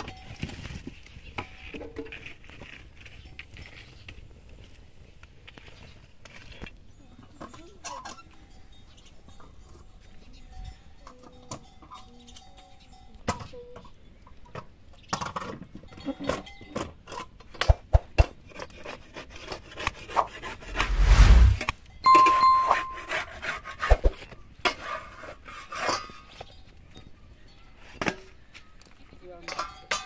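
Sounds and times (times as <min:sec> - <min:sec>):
loud rush of noise: 0:20.7 - 0:21.6
brief ringing tone: 0:22.1 - 0:23.2.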